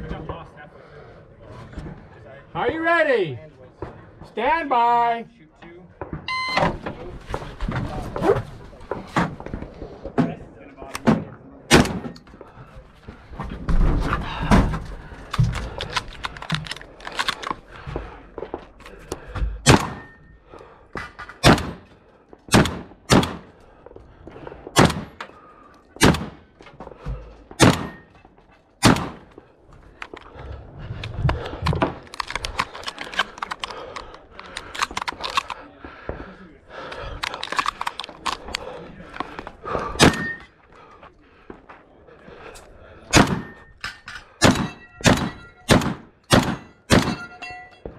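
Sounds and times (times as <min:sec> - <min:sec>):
gun handling clicks and knocks: 0:08.9 - 0:12.5, 0:14.4 - 0:30.4, 0:31.0 - 0:35.7, 0:36.9 - 0:40.7, 0:42.6 - 0:47.9
shotgun shots: 0:11.0 - 0:12.2, 0:19.6 - 0:20.1, 0:21.4 - 0:21.9, 0:22.5 - 0:23.6, 0:24.7 - 0:25.2, 0:26.0 - 0:26.4, 0:27.6 - 0:28.1, 0:28.8 - 0:29.3, 0:39.9 - 0:40.4, 0:43.1 - 0:43.6, 0:44.4 - 0:47.3.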